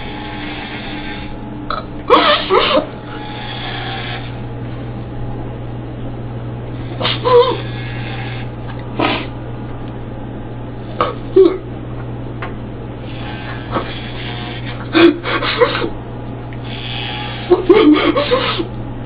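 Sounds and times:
electric hair clippers buzzing: 0:00.0 - 0:05.3, 0:06.6 - 0:10.0, 0:10.8 - 0:11.7, 0:12.4 - 0:18.9.

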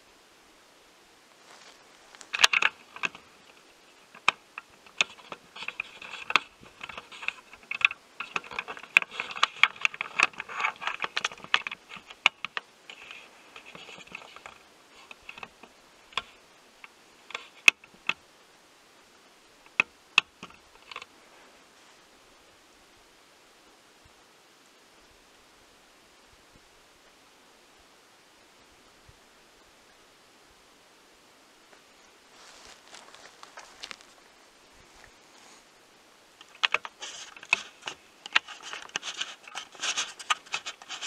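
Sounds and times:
scraping and rustling: 0:01.3 - 0:17.9, 0:32.3 - 0:35.7, 0:36.4 - 0:41.0.

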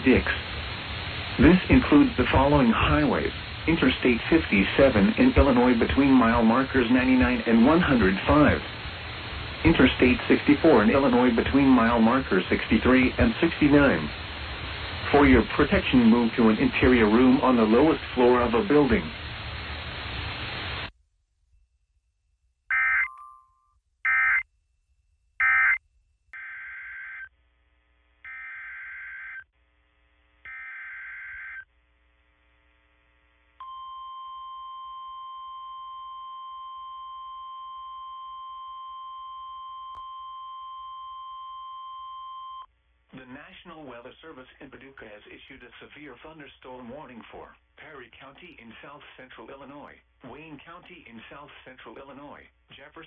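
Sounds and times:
radio hiss: 0:00.0 - 0:20.9
steady warning alarm tone: 0:22.7 - 0:23.2, 0:24.1 - 0:24.4, 0:25.4 - 0:25.8, 0:26.4 - 0:27.3, 0:28.3 - 0:29.5, 0:30.5 - 0:31.6.

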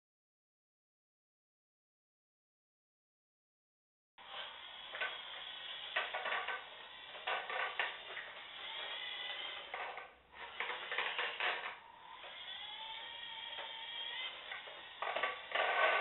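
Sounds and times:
small electric motors whining: 0:04.2 - 0:16.0
rattles and clicks: 0:14.5 - 0:16.0.

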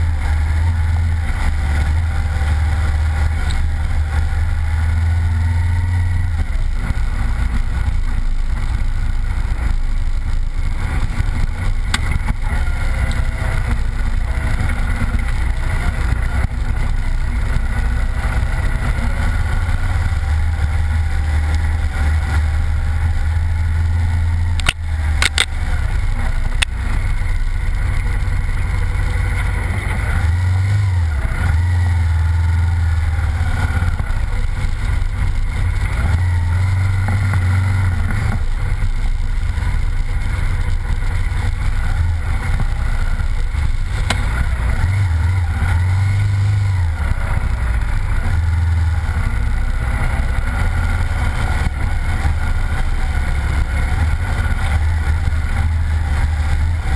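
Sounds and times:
motorcycle engine running: 0:00.0 - 0:56.9
sharp clicks: 0:24.6 - 0:25.6.

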